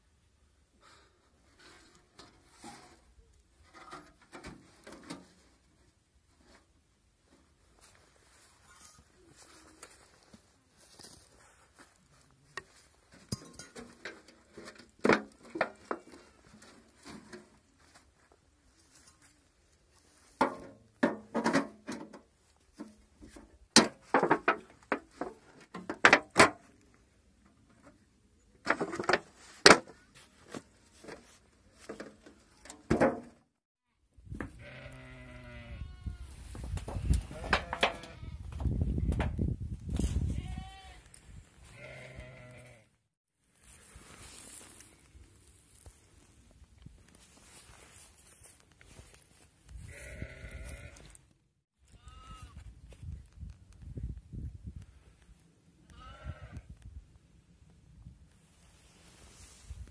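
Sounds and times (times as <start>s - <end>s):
tin can knocking and clattering: 20.4s - 23.0s, 23.8s - 26.6s, 31.9s - 33.4s
lamb bleating: 34.6s - 36.3s, 41.8s - 42.8s, 49.9s - 51.1s
sheep bleating: 41.7s - 42.9s, 49.9s - 51.0s.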